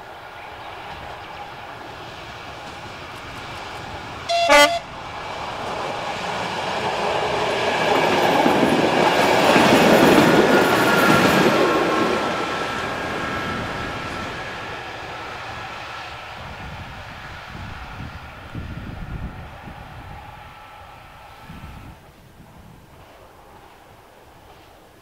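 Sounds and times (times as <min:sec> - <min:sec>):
railcar engine and wheels passing: 0:00.0 - 0:25.0
train horn blast: 0:04.3 - 0:05.0.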